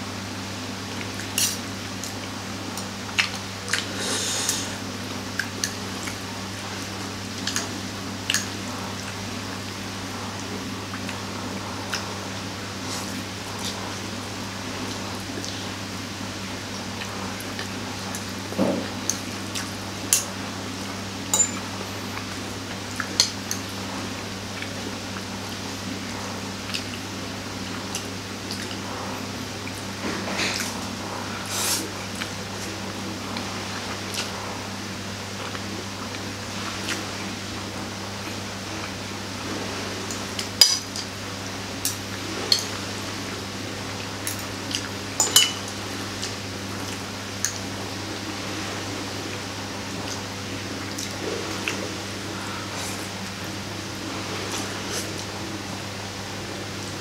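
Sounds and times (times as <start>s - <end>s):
steady low hum: 0.0s - 57.0s
cutlery clinking on plate: 21.3s - 21.6s, 45.2s - 45.6s.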